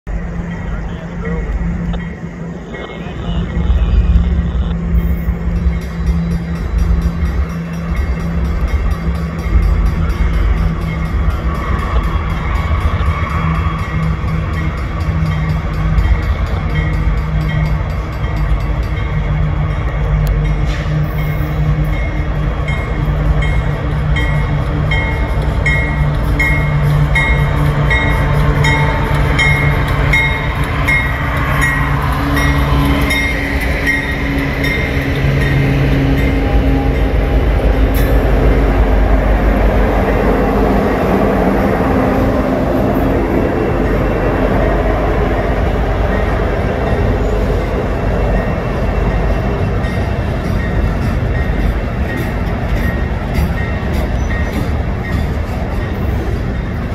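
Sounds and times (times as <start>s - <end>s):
locomotive engines humming: 0.0s - 56.9s
train wheels rumbling on rail: 0.0s - 56.9s
train bell ringing: 0.1s - 56.9s.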